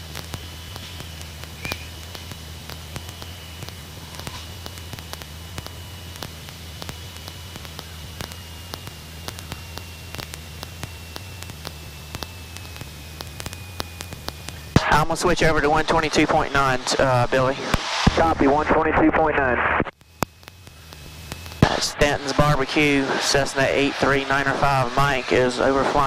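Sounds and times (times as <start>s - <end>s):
aircraft engine drone: 0.0s - 26.0s
crackling static: 0.0s - 26.0s
faint high whine: 0.0s - 26.0s.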